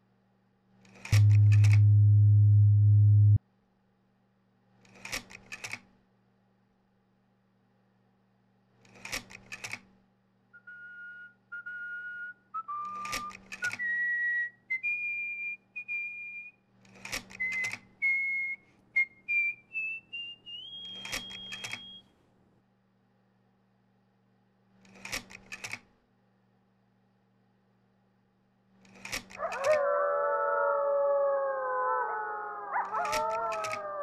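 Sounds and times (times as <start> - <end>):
clusters of sharp clicks: 0.9 - 1.9, 12.8 - 13.9, 20.9 - 21.9, 24.8 - 25.9, 28.8 - 29.9, 32.8 - 34.0
pure whistle-like notes: 1.1 - 3.4, 10.6 - 16.6, 17.3 - 22.1.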